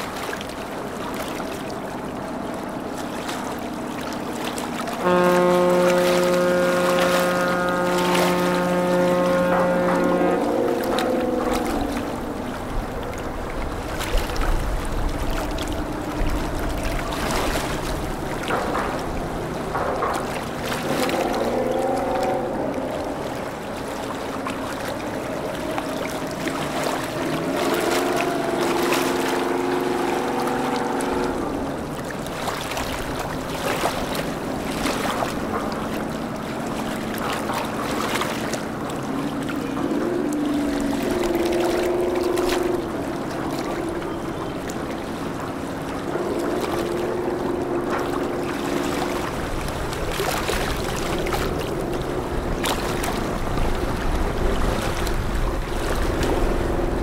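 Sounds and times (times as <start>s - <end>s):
boat engines droning: 0.0s - 57.0s
moving water: 0.0s - 57.0s.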